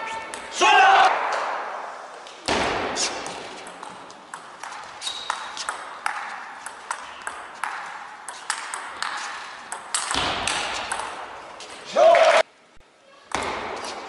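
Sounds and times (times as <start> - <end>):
ball clicking off paddles: 3.2 - 11.8.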